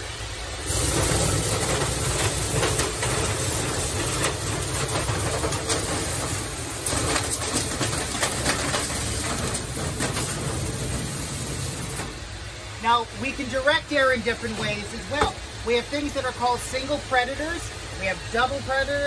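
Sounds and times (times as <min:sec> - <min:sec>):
compressed air rushing: 0:00.0 - 0:12.8
vacuum machine rumbling: 0:00.0 - 0:19.0
air whip rattling in duct: 0:00.6 - 0:12.3.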